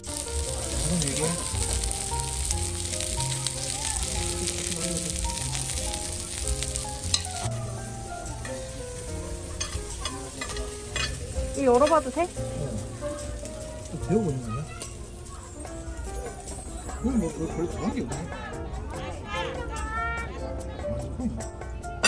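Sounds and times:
high hiss: 0.0 - 15.1
background music with bass: 0.0 - 22.0.

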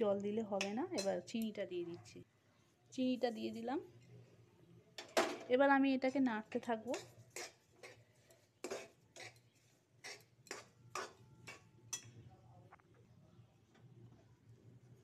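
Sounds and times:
spoon scraping metal pot: 6.0 - 12.1.

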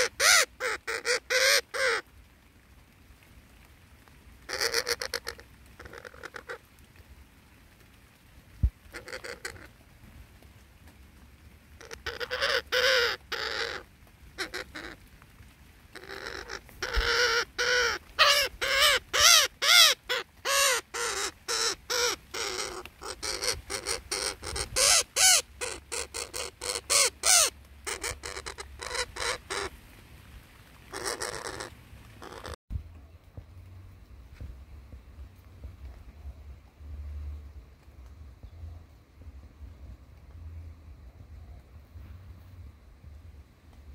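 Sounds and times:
parrots squawking: 0.0 - 2.0, 4.5 - 6.6, 8.9 - 9.7, 11.8 - 15.0, 15.9 - 29.7, 30.9 - 32.6.

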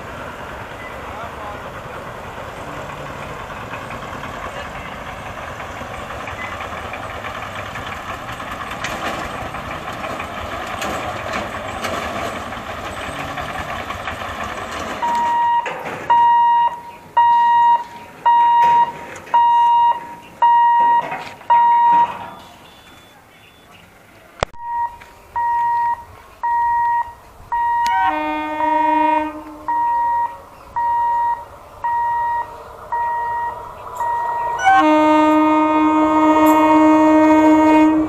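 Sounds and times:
vehicles passing: 0.0 - 38.0
voices: 0.0 - 38.0
level crossing warning beeps: 0.8 - 1.2, 6.3 - 6.7, 15.0 - 23.8, 24.6 - 28.2, 29.7 - 35.0.

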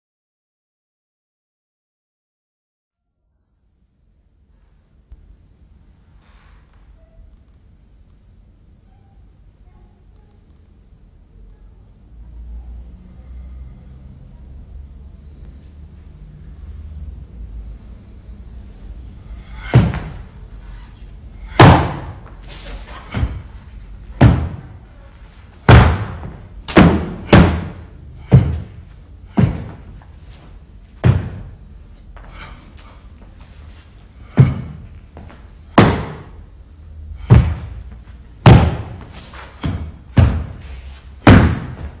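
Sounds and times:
shoes stamping on wooden stage: 19.6 - 20.3, 21.6 - 22.4, 23.0 - 23.6, 24.2 - 24.8, 25.6 - 30.1, 31.0 - 31.6, 34.2 - 36.4, 37.2 - 42.0.

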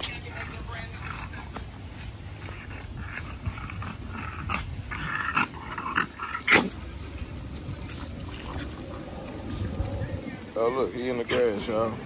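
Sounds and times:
dogs making vocal noises: 0.0 - 10.6.

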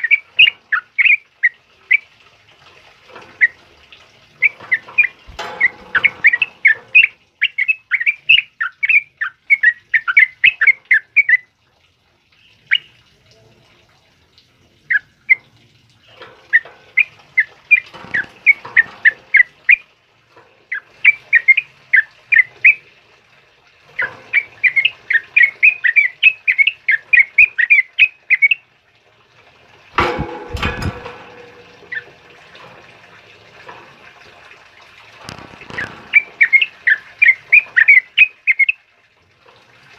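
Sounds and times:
bird chirping song: 0.0 - 2.0, 4.4 - 11.4, 12.4 - 13.0, 16.0 - 19.8, 20.7 - 22.8, 23.9 - 28.6, 31.8 - 32.1, 35.6 - 38.8.

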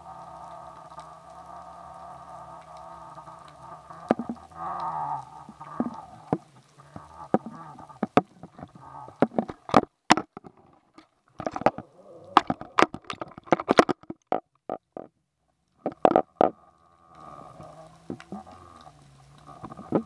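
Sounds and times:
fish knocking at bait underwater: 4.1 - 4.4.

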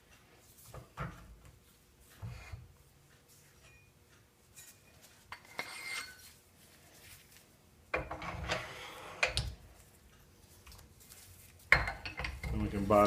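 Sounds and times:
metal clatter and scrape: 4.5 - 6.4, 8.0 - 9.4.

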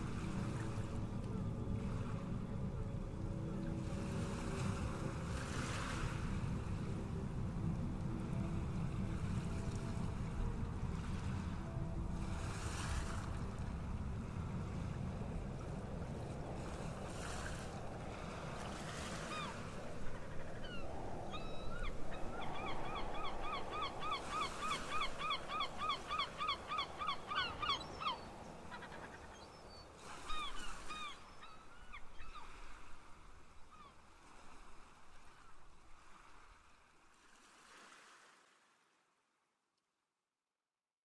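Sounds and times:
wind and surf rumble: 0.0 - 38.6.

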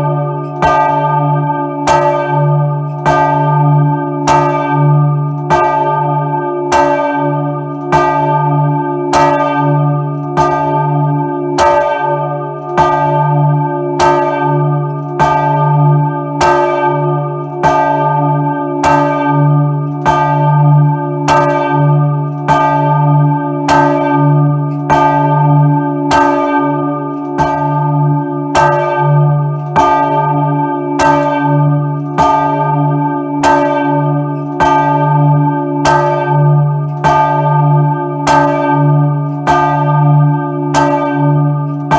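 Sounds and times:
church bell ringing: 0.0 - 41.9.

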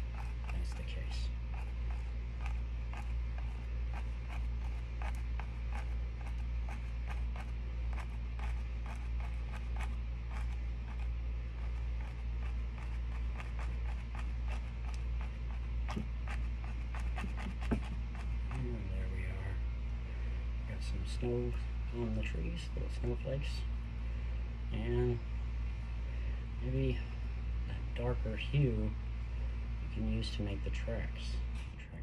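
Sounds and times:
paintbrush dabbing on canvas: 0.0 - 19.4
steady low hum: 0.0 - 32.0.

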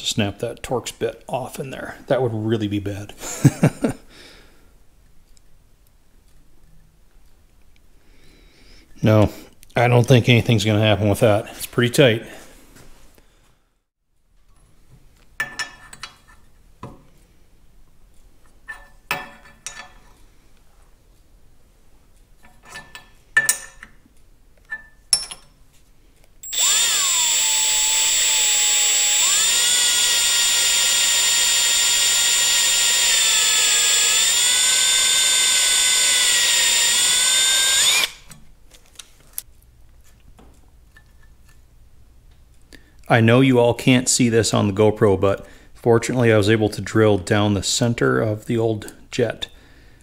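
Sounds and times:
power drill whining: 26.4 - 38.3.

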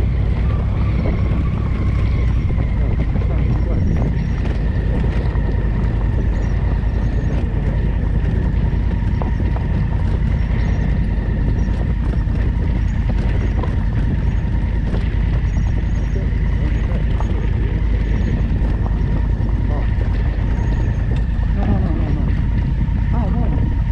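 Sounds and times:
motorcycle engine whining: 0.0 - 23.9.

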